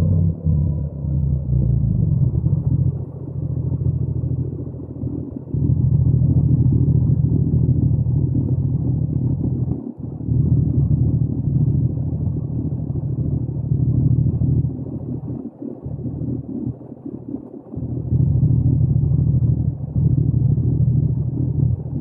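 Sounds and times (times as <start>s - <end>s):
motorcycle engine rumbling: 0.0s - 16.8s, 17.8s - 22.0s.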